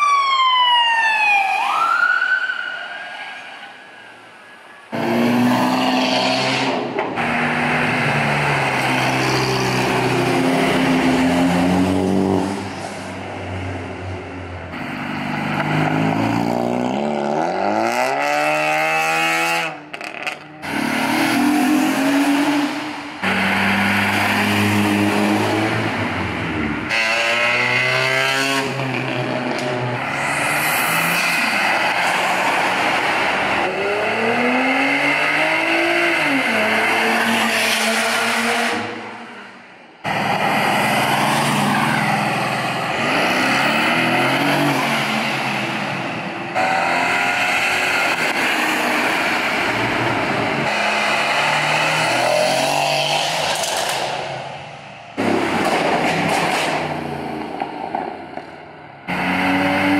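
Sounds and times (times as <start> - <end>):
cars accelerating past revving: 4.9 - 12.8, 14.8 - 39.2, 40.0 - 54.6, 59.0 - 59.9.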